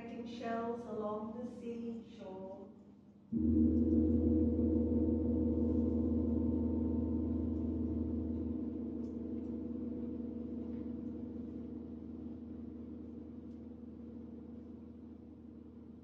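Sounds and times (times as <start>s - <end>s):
gong ringing: 3.3s - 15.9s
deep low gong hum: 3.3s - 16.0s.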